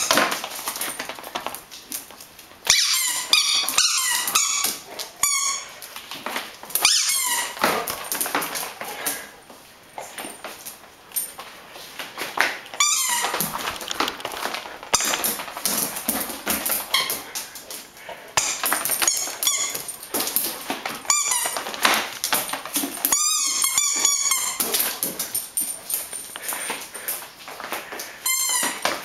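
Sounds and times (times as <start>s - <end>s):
squeaky toy ball squeaking: 2.7s - 5.8s, 6.8s - 7.6s, 12.8s - 13.4s, 18.4s - 19.9s, 21.1s - 21.6s, 23.1s - 24.7s, 28.2s - 28.8s
scuffling and clicking: 10.1s - 29.0s.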